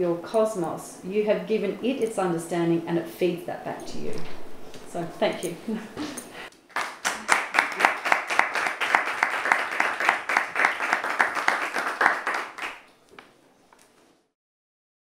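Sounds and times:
audience applauding: 0:06.7 - 0:12.9.

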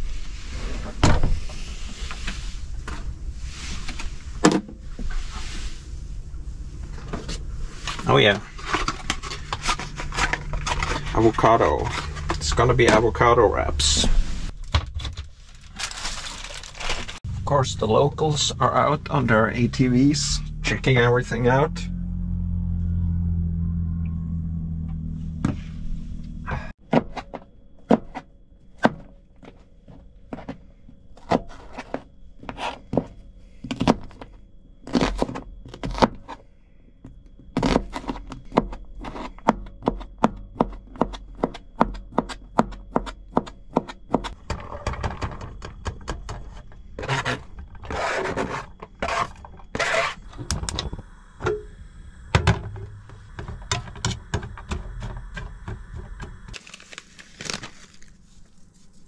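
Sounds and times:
knife scraping board: 0:47.0 - 0:50.4.

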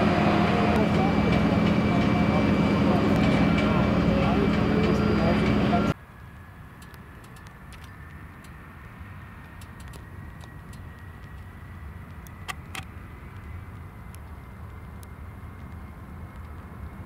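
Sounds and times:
low rumble of distant engines: 0:00.0 - 0:17.0
sharp clicks: 0:06.8 - 0:08.6, 0:09.4 - 0:15.8.

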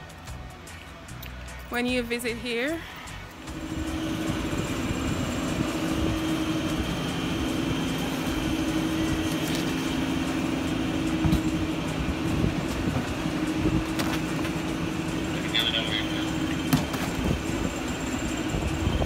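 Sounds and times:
mechanical rumble and hum: 0:00.0 - 0:19.0.

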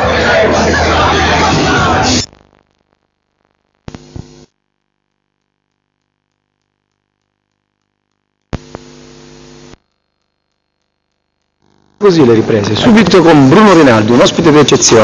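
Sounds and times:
static bursts: 0:00.0 - 0:15.0
mains hum: 0:01.8 - 0:15.0
faint ticking: 0:02.7 - 0:12.2.

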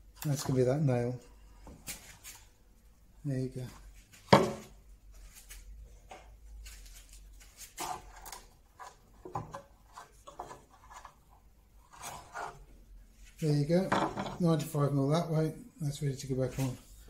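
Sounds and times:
wood pieces knocking and rubbing: 0:04.1 - 0:04.8, 0:07.7 - 0:12.6.

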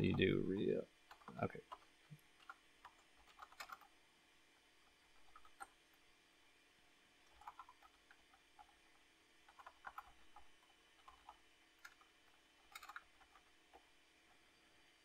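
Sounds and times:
faint keyboard typing: 0:00.0 - 0:04.0, 0:05.0 - 0:06.1, 0:07.2 - 0:14.5.

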